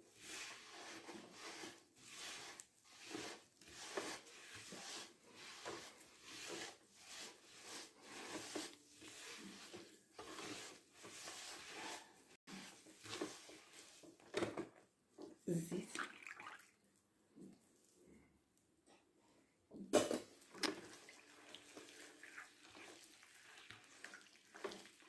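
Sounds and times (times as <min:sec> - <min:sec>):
scraping and squishing butter and sugar: 0:00.0 - 0:14.3, 0:20.4 - 0:25.0.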